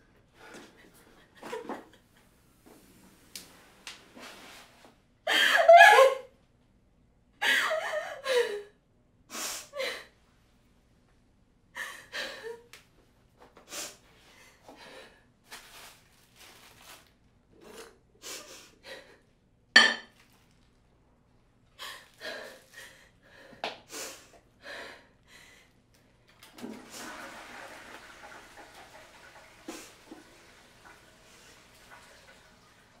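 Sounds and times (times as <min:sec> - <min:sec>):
woman sobbing: 0:05.3 - 0:06.3, 0:07.4 - 0:08.8
tap running water: 0:26.3 - 0:33.0.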